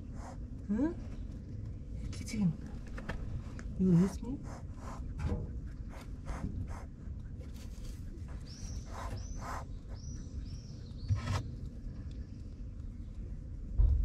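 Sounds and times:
kittens hissing: 0:08.7 - 0:10.1.

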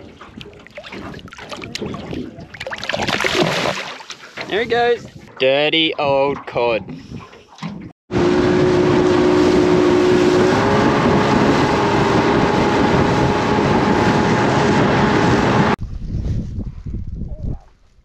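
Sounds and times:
rushing water: 0:00.0 - 0:04.5
rushing wind: 0:04.4 - 0:05.4, 0:08.1 - 0:18.0
outboard motor running: 0:08.1 - 0:15.8.

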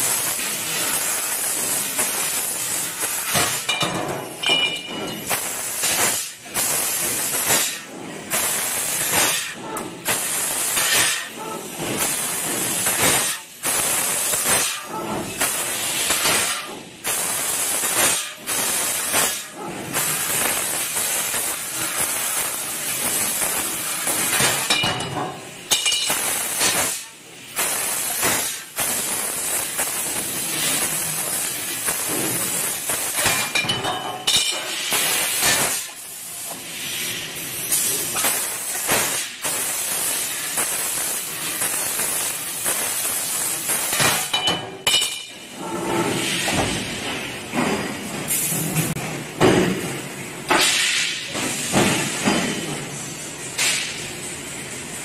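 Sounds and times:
laser cutter gas hissing: 0:00.0 - 0:49.0, 0:50.2 - 0:55.0.

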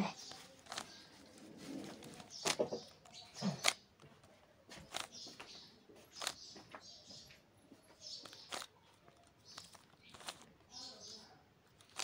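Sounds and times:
light plastic scraping: 0:00.2 - 0:05.3, 0:08.2 - 0:10.9
puzzle cube clicking: 0:00.6 - 0:00.9, 0:02.0 - 0:04.1, 0:08.2 - 0:10.6, 0:11.8 - 0:12.0.

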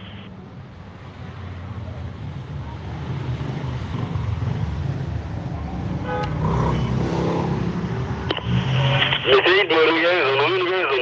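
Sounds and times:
traffic engines rumbling: 0:00.0 - 0:11.0
car horn toot: 0:06.0 - 0:06.4.

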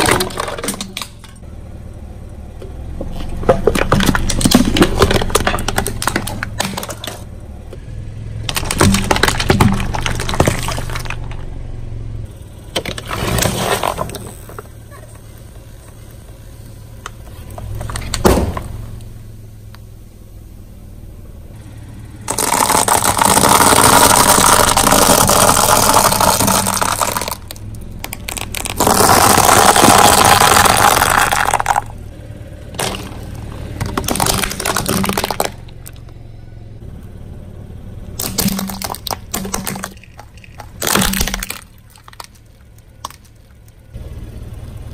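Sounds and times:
plastic toys cracking: 0:08.5 - 0:11.4, 0:22.3 - 0:31.9, 0:32.8 - 0:36.0, 0:38.2 - 0:43.8
cans crushed with squelches: 0:22.3 - 0:31.8, 0:33.8 - 0:36.0, 0:38.2 - 0:43.3
tyre crunching dry pasta: 0:22.3 - 0:31.9, 0:32.8 - 0:36.0.

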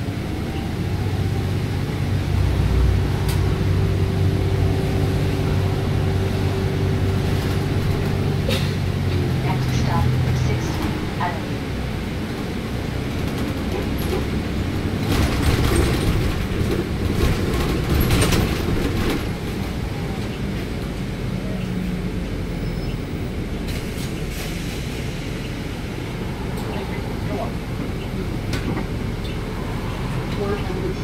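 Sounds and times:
bus engine rumble: 0:00.0 - 0:31.0
rattling and knocks: 0:13.1 - 0:19.4.

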